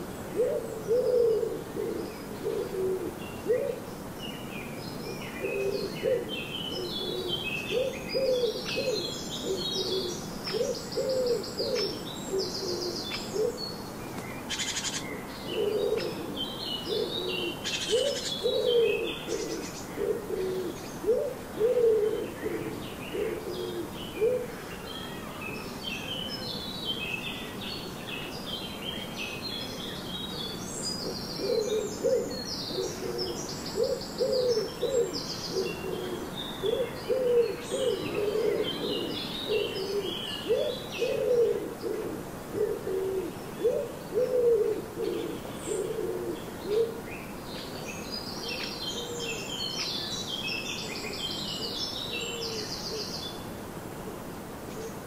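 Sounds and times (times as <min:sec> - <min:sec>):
small songbirds chirping: 0:00.0 - 0:41.9, 0:42.6 - 0:53.6
pigeons cooing: 0:00.3 - 0:03.9, 0:05.4 - 0:13.6, 0:14.5 - 0:25.2, 0:31.0 - 0:47.2.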